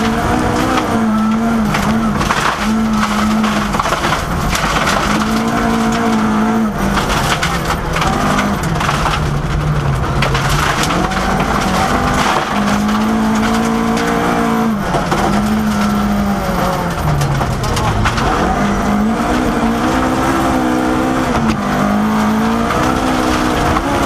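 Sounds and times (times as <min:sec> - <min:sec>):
stones rattling under car: 0:00.0 - 0:20.6, 0:21.3 - 0:24.0
gravel crunching under car: 0:00.0 - 0:24.0
rally car engine revving high: 0:00.0 - 0:24.0.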